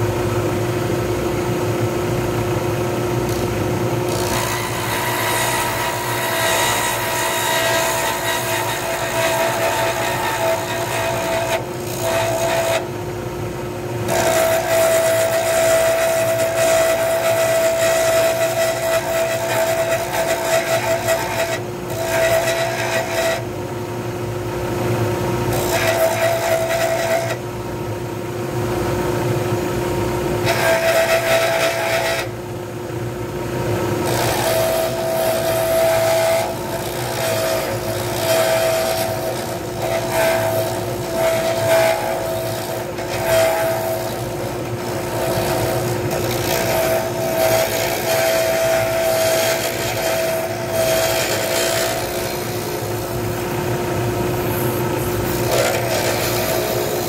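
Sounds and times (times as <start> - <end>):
turning tool scraping wood: 3.2 - 12.9, 14.0 - 23.5, 25.5 - 27.4, 30.4 - 32.3, 34.0 - 53.3, 54.4 - 57.0.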